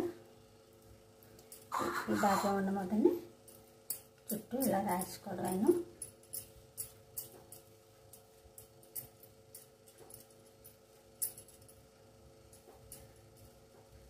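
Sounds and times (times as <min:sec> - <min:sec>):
faint steady hum: 0:00.0 - 0:14.0
small clicks and soft rustling: 0:00.7 - 0:01.7.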